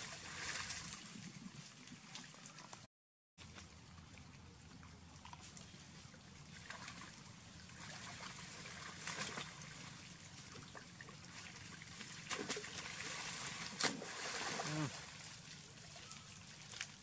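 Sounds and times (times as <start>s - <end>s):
river water splashing and lapping: 0.0s - 17.0s
sharp splashes: 6.5s - 17.0s.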